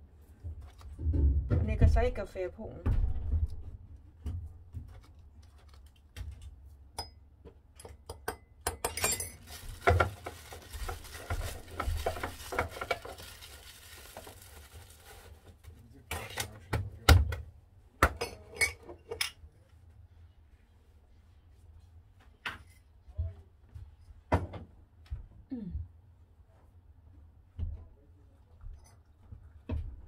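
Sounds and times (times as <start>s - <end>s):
cup and spoon clinking: 8.1s - 10.0s.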